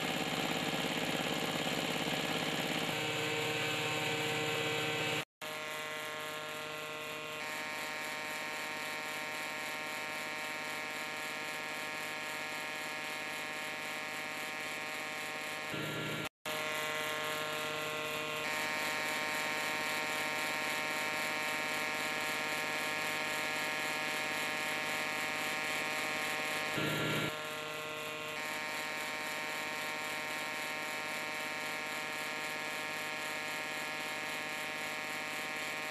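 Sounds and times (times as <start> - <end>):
tiller engine running: 0.0 - 5.2.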